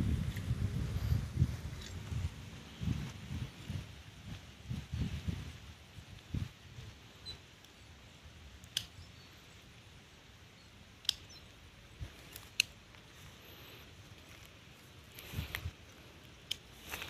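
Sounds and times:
quiet outdoor background: 0.0s - 17.0s
plant stems snapping: 12.2s - 13.0s, 15.1s - 17.0s.

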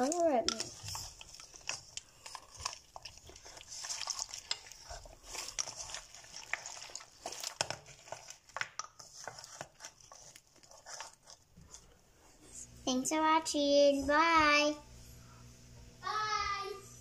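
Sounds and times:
hands squishing slime: 0.0s - 11.9s.

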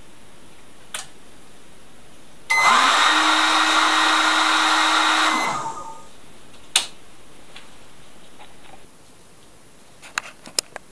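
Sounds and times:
hair dryer running: 2.5s - 6.1s.

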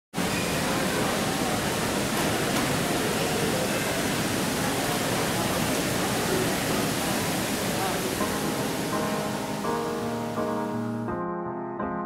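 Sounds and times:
steady rushing noise: 3.8s - 10.8s.

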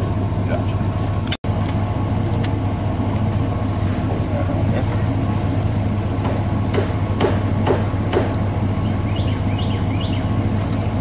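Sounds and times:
engine idling hum: 0.0s - 11.0s
sharp knocks on pipe fittings: 6.2s - 8.4s.

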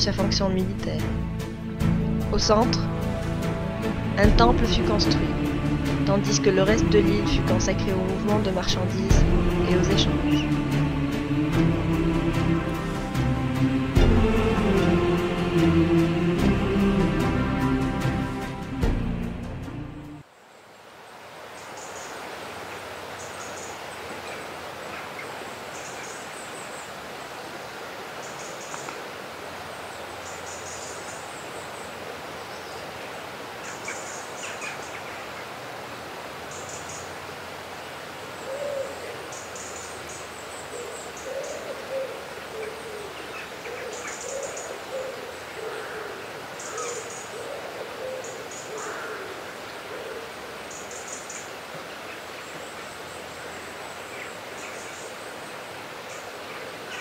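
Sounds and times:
steady background hiss: 0.0s - 57.0s
lower wavering bird calls: 29.6s - 35.6s, 36.4s - 37.5s, 38.2s - 57.0s.

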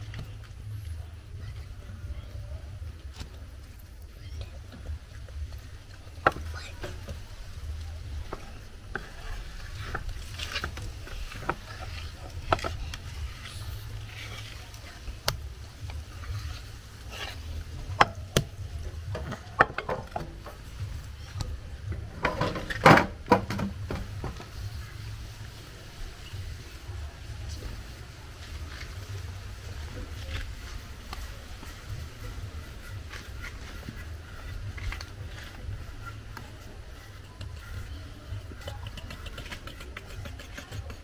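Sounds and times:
dough being scraped: 16.1s - 18.0s, 32.3s - 41.0s.

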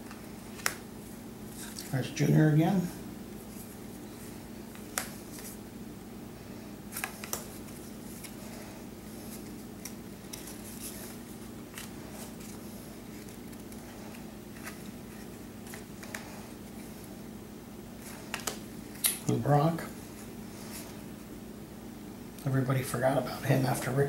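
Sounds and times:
trading cards clicking and sliding: 3.5s - 5.6s, 6.9s - 17.1s.

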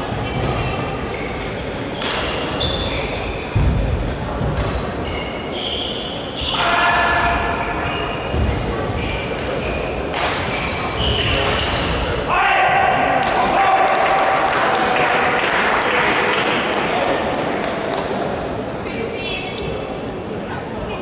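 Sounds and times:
shoes squeaking on court floor: 0.3s - 3.6s, 5.0s - 12.1s.

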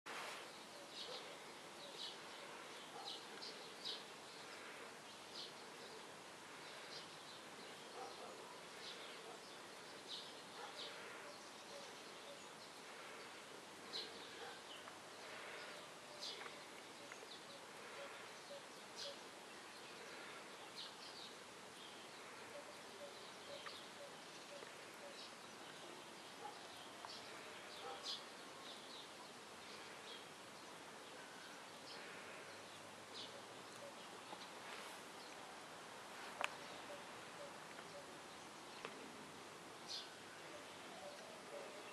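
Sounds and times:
steady hiss: 0.1s - 0.7s.

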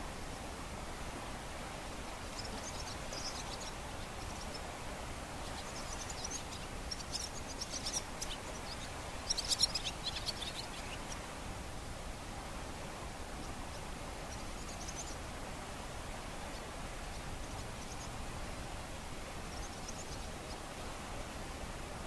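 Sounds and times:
small birds chirping: 1.9s - 11.4s, 13.3s - 15.3s, 16.4s - 18.2s, 19.4s - 21.1s.

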